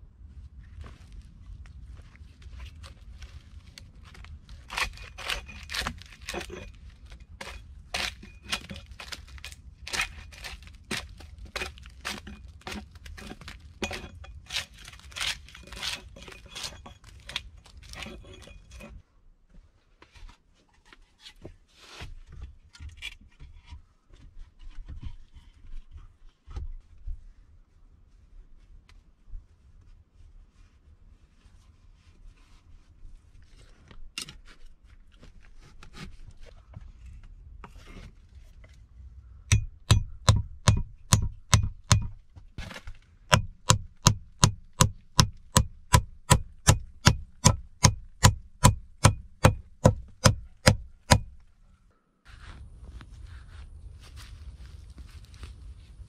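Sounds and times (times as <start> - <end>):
rustling: 0.2 - 22.5, 49.2 - 56.0
hatchet striking wooden pole: 4.7 - 6.7, 7.4 - 18.6, 39.5 - 51.5.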